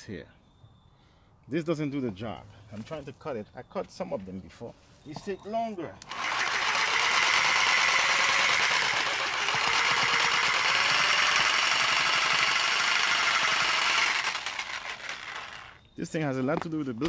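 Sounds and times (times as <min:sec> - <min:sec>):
reciprocating saw cutting wood: 0:06.0 - 0:15.8.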